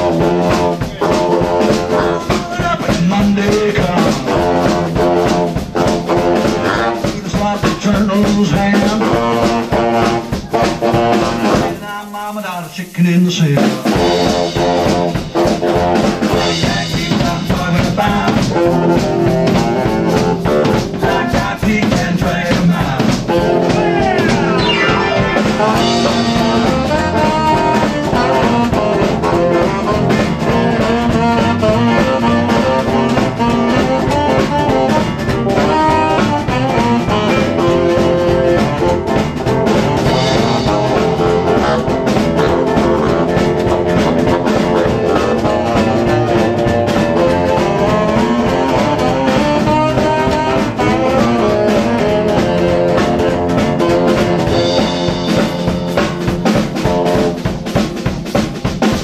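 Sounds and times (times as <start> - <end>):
electric guitar: 0.0 - 12.2, 13.3 - 59.0
baritone saxophone: 0.0 - 12.3, 13.4 - 57.8
upright bass: 0.0 - 12.3, 13.0 - 57.4
drum kit: 0.0 - 59.0.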